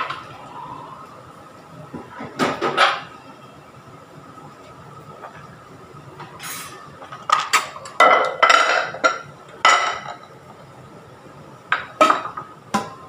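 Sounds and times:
glass containers clinking: 0:07.1 - 0:10.4.

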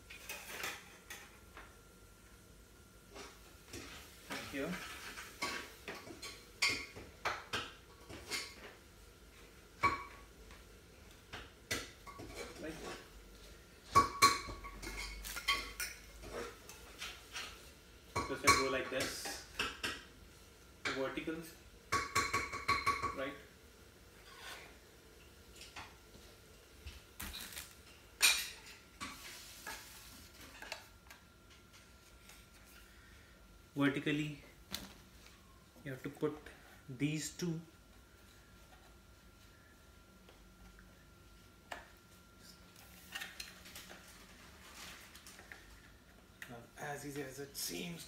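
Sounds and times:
rustling and scraping handling noises: 0:28.6 - 0:31.0, 0:42.4 - 0:46.2.

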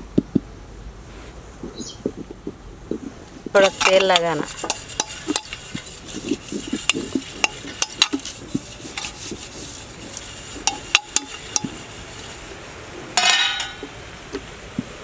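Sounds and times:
steel plate clanking and ringing: 0:06.9 - 0:08.3, 0:10.2 - 0:11.8, 0:13.2 - 0:13.9.

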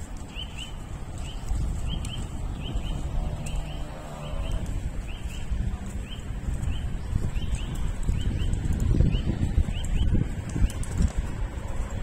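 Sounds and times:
horse hooves clip-clopping on road: 0:00.0 - 0:12.0.

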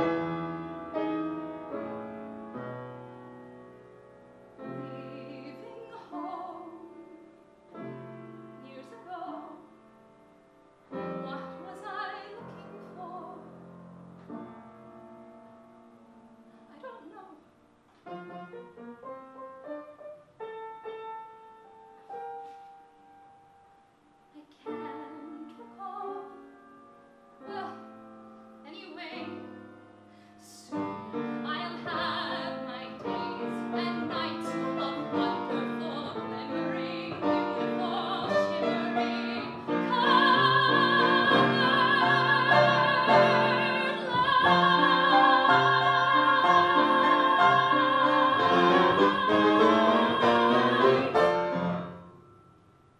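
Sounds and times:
piano accompaniment: 0:00.0 - 0:52.9
woman singing: 0:04.6 - 0:07.4, 0:08.6 - 0:09.7, 0:11.1 - 0:13.5, 0:24.4 - 0:26.5, 0:27.4 - 0:27.9, 0:28.6 - 0:29.6, 0:30.4 - 0:51.3.

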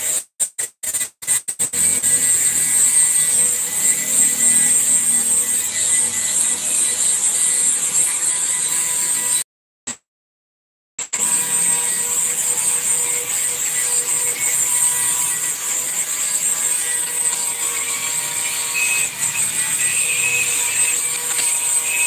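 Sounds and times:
machine high hiss: 0:11.3 - 0:22.0.

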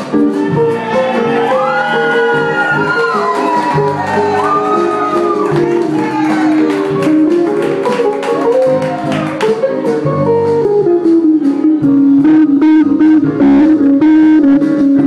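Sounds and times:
drums: 0:00.0 - 0:15.0
electric guitar: 0:00.0 - 0:15.0
keyboard: 0:00.0 - 0:15.0
saxophones: 0:11.4 - 0:15.0.

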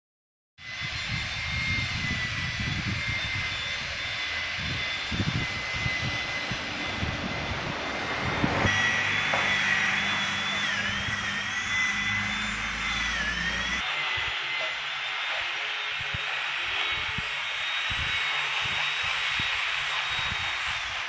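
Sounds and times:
high-pitched mechanical whine: 0:00.6 - 0:21.0
wind buffeting microphone: 0:00.7 - 0:13.2, 0:16.9 - 0:21.0
truck engine idling: 0:06.6 - 0:13.8.

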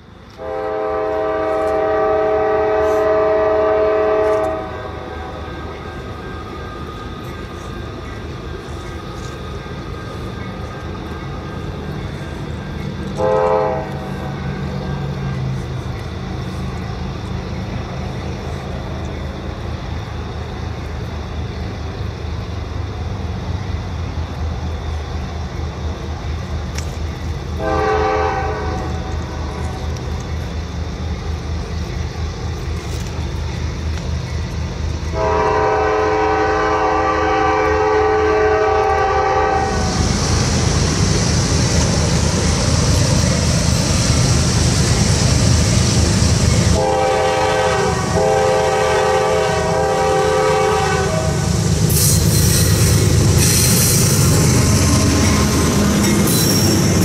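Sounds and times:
diesel locomotive rumble: 0:00.0 - 0:57.0
train hissing: 0:00.0 - 0:57.0
train air horn chord: 0:00.4 - 0:05.5, 0:13.1 - 0:14.4, 0:27.6 - 0:29.8, 0:35.1 - 0:39.9, 0:46.7 - 0:53.9.

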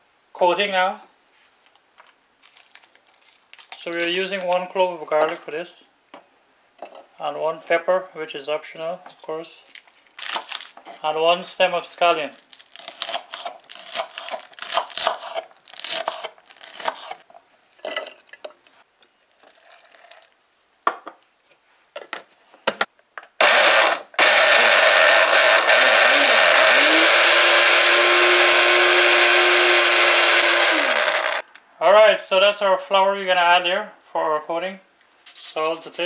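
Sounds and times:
electric blender running: 0:23.4 - 0:31.4.

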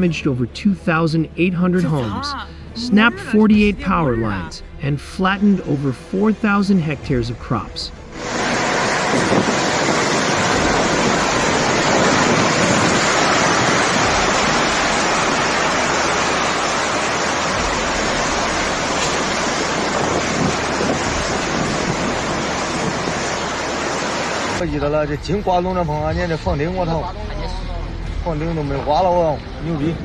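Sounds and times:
strong wind buffeting microphone: 0:08.2 - 0:24.6.

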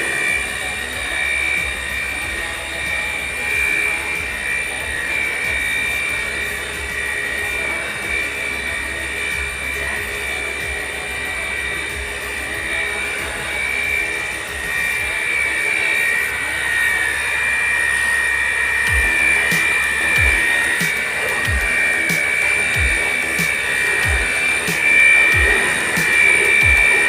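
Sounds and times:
music with slow beat: 0:00.0 - 0:15.2, 0:18.8 - 0:27.0
water gun motor whining: 0:00.0 - 0:27.0.

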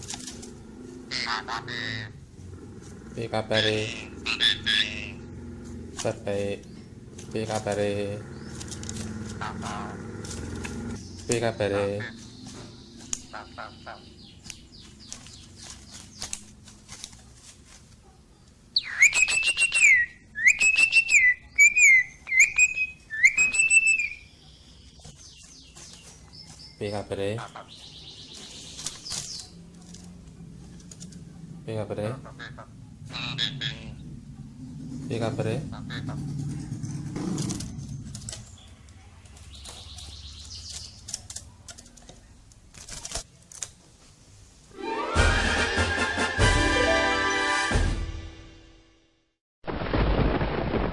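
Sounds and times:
bird rasping whistled calls: 0:18.8 - 0:24.3
bird fluttering in cage: 0:28.3 - 0:31.2
clicks and rustling: 0:37.3 - 0:43.9.

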